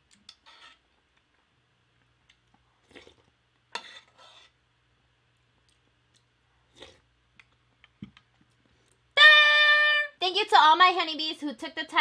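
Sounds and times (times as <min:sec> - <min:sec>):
wooden spoon scraping bowl: 0:00.4 - 0:00.8, 0:03.7 - 0:04.6.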